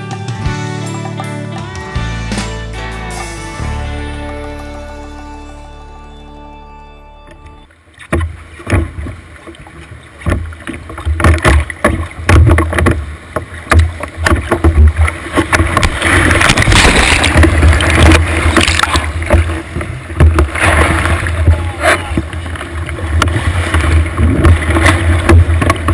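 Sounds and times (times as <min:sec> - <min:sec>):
music track: 0:00.0 - 0:07.8
water rushing against boat hull: 0:07.3 - 0:25.9
knocks on hull: 0:10.2 - 0:19.6, 0:20.2 - 0:22.3, 0:23.2 - 0:25.9.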